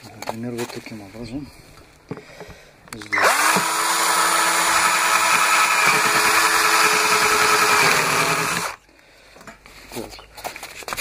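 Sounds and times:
electric drill boring plastic: 0:03.1 - 0:08.8.

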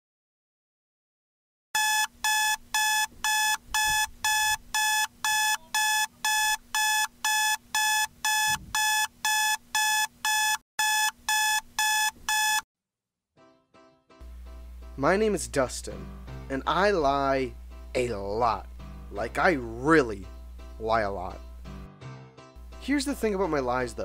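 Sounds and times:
high electronic alarm beeps: 0:01.8 - 0:12.6.

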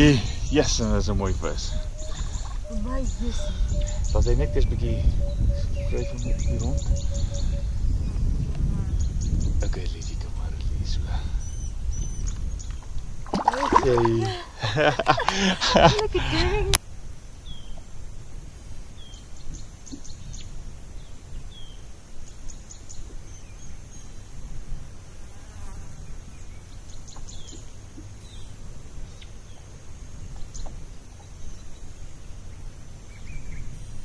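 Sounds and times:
insects buzzing high-pitched: 0:00.0 - 0:10.1
low wind-like rumble: 0:00.0 - 0:34.0.

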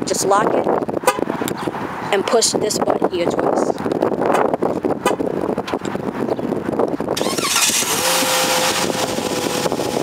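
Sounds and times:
car engine starting and idling: 0:07.2 - 0:10.0.

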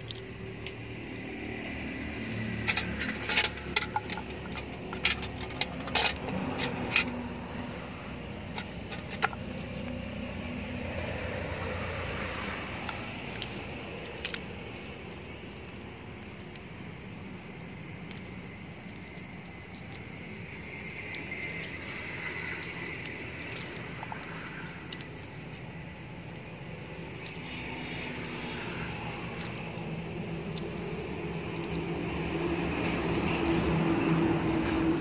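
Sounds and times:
clicks and rustles of a net: 0:00.0 - 0:07.3, 0:28.9 - 0:34.8
low engine drone: 0:00.0 - 0:35.0.

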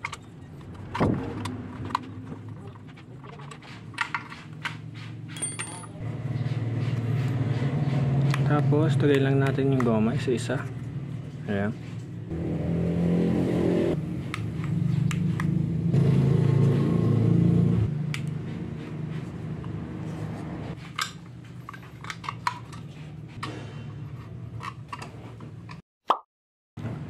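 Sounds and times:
vehicle engine running: 0:06.0 - 0:20.8.

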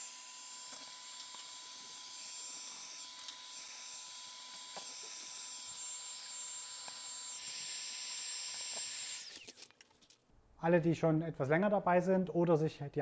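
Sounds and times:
power tool motor whining: 0:00.0 - 0:09.7.

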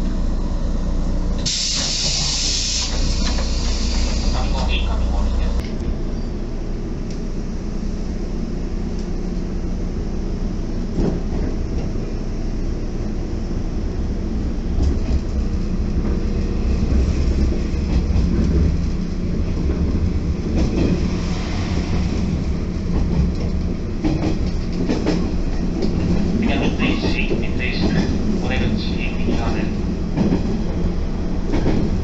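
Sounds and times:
train cabin rumble: 0:00.0 - 0:32.0
wheels clacking over rail joints: 0:21.9 - 0:32.0.

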